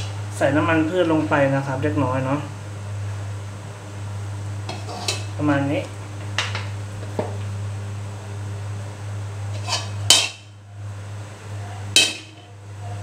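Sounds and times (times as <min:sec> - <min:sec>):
steady low hum: 0:00.0 - 0:13.0
metal spatula scraping wok: 0:04.7 - 0:05.4, 0:09.5 - 0:10.5
spatula clanking on wok: 0:09.6 - 0:10.5, 0:12.0 - 0:12.5.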